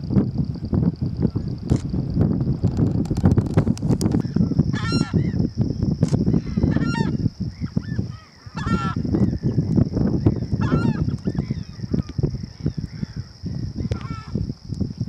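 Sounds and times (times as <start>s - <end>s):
constant high hiss: 0.0s - 15.0s
steady low rumble: 0.0s - 15.0s
softer bird calls: 6.2s - 14.4s
large waterbird calling: 6.3s - 9.4s, 10.6s - 12.1s.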